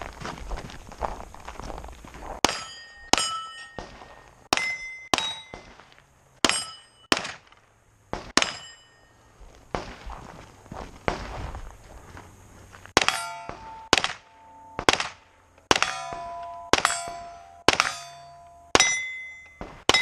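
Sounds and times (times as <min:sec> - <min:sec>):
steel plate ringing clang: 0:02.4 - 0:05.7, 0:06.4 - 0:07.1, 0:08.4 - 0:09.2, 0:13.0 - 0:14.8, 0:15.7 - 0:20.0
pistol shots: 0:02.4 - 0:08.9, 0:13.0 - 0:20.0.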